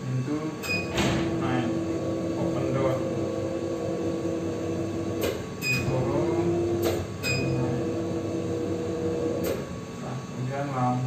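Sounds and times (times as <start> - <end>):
motor humming: 0.6 - 9.9
short electronic beeps: 7.2 - 7.6.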